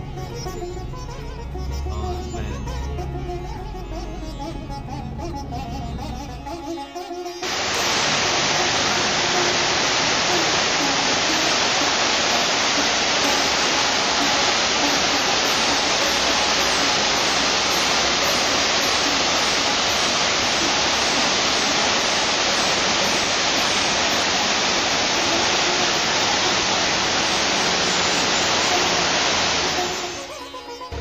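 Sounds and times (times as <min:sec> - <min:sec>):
waterfall rushing: 0:07.4 - 0:31.0.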